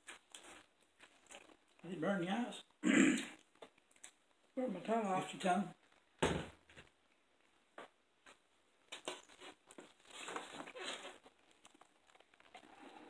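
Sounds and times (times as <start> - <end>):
chewing and crunching: 0.0 - 1.9, 2.6 - 4.6, 8.9 - 13.0.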